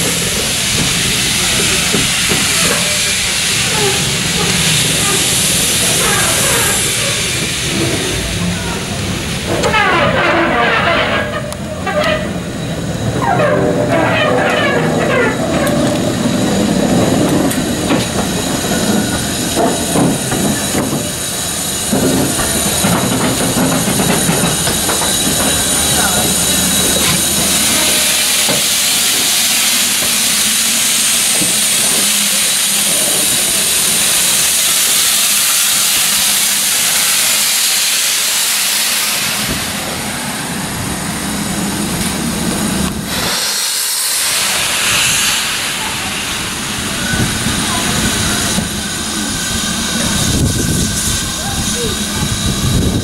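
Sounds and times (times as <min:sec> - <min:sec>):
voices: 0:00.0 - 0:34.4, 0:44.6 - 0:53.0
steam locomotive hissing steam: 0:00.0 - 0:53.0.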